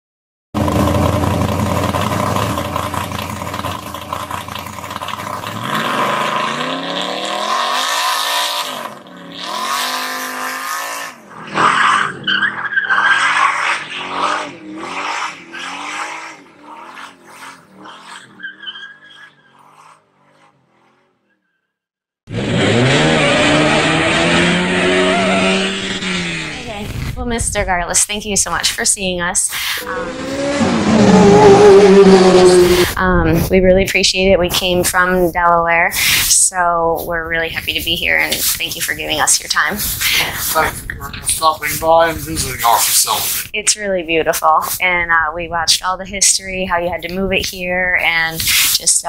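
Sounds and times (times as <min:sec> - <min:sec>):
race car engine revving: 0:00.6 - 0:21.4, 0:22.3 - 0:49.0.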